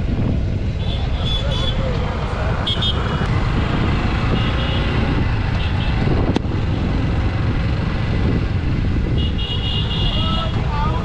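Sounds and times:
motorcycle engine rumble: 0.0s - 11.0s
wind on microphone: 0.0s - 11.0s
vehicle horn beeps: 0.8s - 1.8s, 9.2s - 10.4s.

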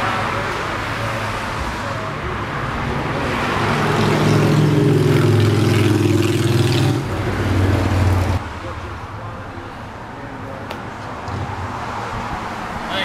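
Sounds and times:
vehicle engine passing: 0.1s - 8.4s.

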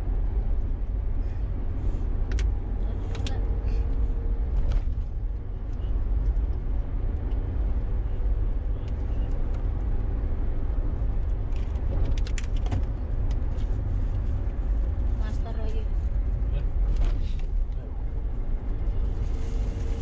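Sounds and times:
low rumble of tyres and engine: 0.0s - 20.0s.

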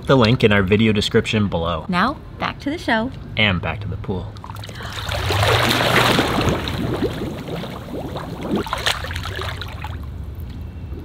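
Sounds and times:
low steady hum: 0.0s - 11.0s
pool water splashing: 4.3s - 11.0s.

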